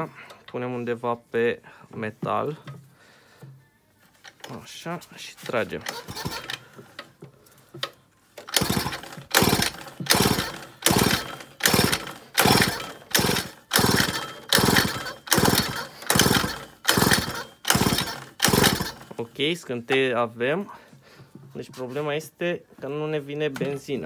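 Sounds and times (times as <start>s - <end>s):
engine pull-starter whirring: 5.4s - 7.2s, 7.8s - 19.4s.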